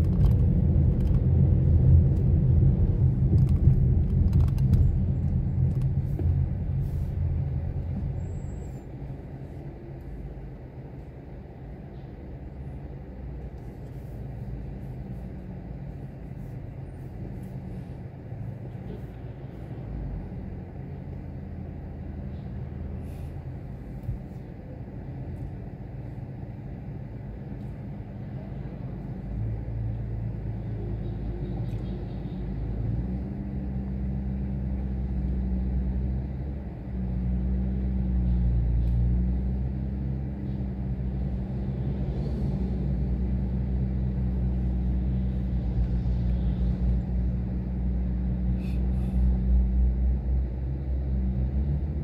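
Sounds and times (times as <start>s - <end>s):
car engines idling in traffic: 0.0s - 52.0s.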